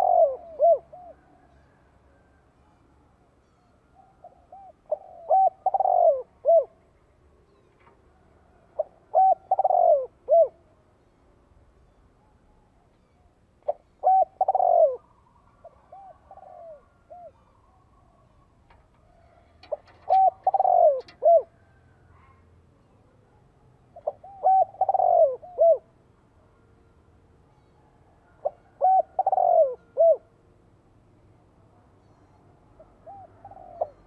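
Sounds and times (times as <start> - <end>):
dove cooing: 0.0 - 2.3, 4.0 - 6.9, 8.4 - 10.7, 13.6 - 22.4, 23.9 - 26.0, 28.3 - 30.4, 32.8 - 34.0.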